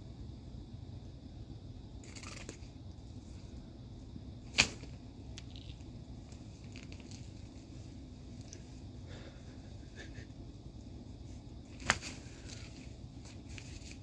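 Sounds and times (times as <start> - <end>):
sharp snap: 4.5 - 5.5
rustling of nylon cat tunnel: 11.3 - 14.0.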